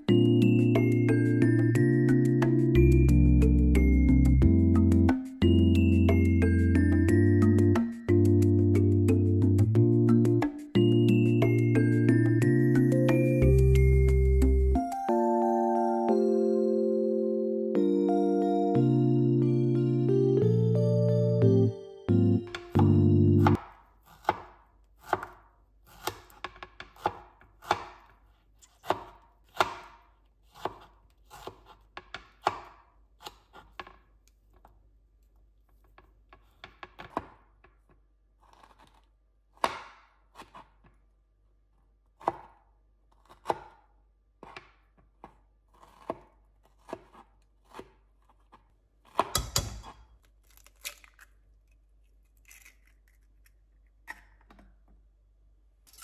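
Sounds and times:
knife chopping on wooden board: 22.6 - 34.0, 38.4 - 40.9, 42.2 - 42.6, 43.2 - 50.1.

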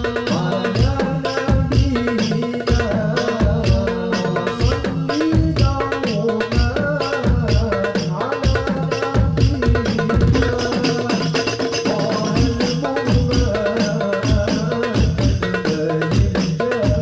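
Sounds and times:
darbuka drumming: 0.0 - 17.0
hand percussion: 0.0 - 17.0.

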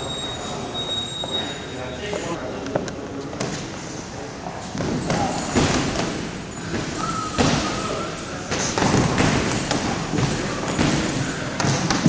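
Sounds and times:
boxing gloves landing punches: 8.5 - 12.0.

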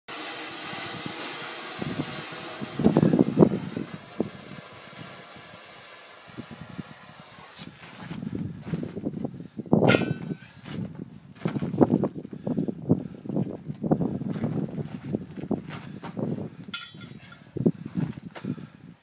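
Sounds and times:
compressed air hissing: 0.1 - 13.3
footsteps on gravel: 7.7 - 9.3, 10.0 - 12.1, 13.3 - 16.4.

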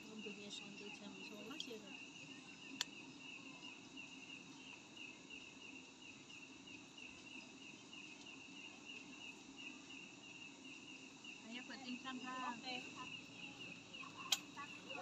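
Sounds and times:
cricket chirping: 0.0 - 15.0
faint low background hum: 0.0 - 15.0
sharp click: 14.3 - 14.5.

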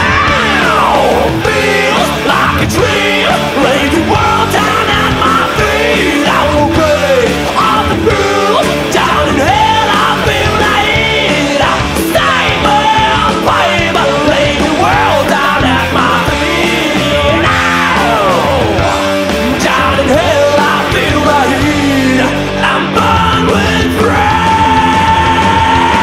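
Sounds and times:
bass guitar: 0.0 - 26.0
drums: 0.0 - 26.0
electric guitar: 0.0 - 26.0.

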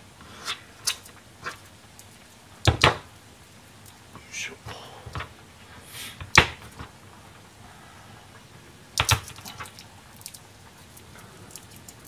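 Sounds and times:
garlic clicking on cutting board: 9.0 - 9.5.

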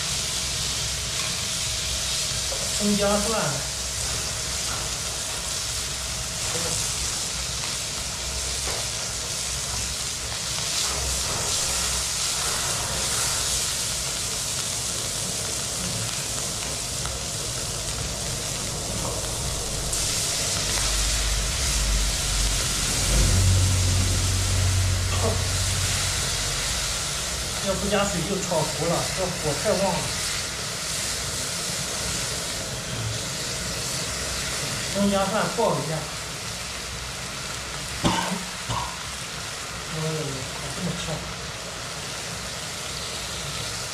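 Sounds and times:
stir-frying sizzle in wok: 0.0 - 43.9
low rumble: 18.1 - 29.4.

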